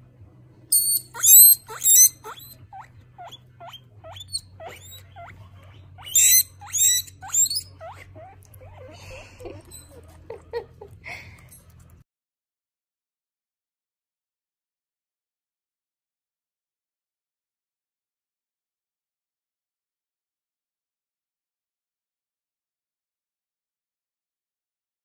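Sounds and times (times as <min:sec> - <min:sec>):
guinea pig squealing: 0:00.7 - 0:10.7.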